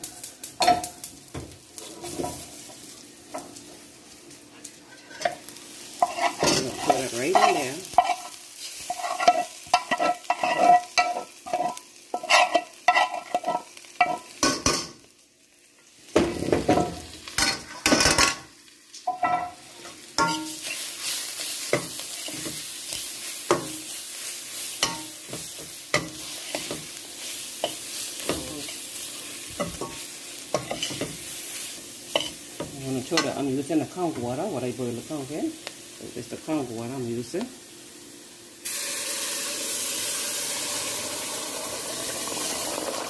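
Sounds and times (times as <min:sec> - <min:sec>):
vegetables sizzling in pot: 0:00.0 - 0:43.0
metal spoon scraping metal pan: 0:06.0 - 0:14.2, 0:29.6 - 0:31.2.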